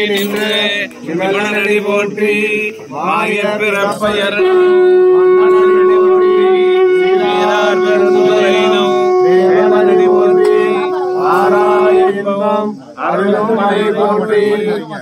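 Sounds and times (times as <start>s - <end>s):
man chanting: 0.0s - 15.0s
steady held drone tone: 3.0s - 14.8s.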